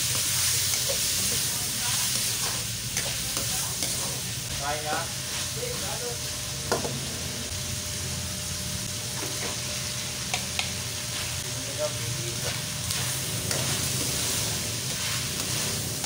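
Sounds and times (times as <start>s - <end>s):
meat and onions sizzling in a wok: 0.0s - 16.0s
spatula scraping a pan: 12.4s - 16.0s.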